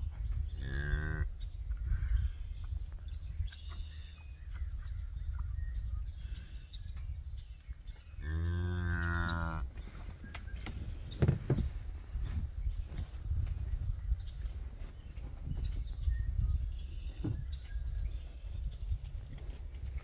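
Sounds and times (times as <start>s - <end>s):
cow mooing: 0.6s - 1.3s, 8.2s - 9.6s.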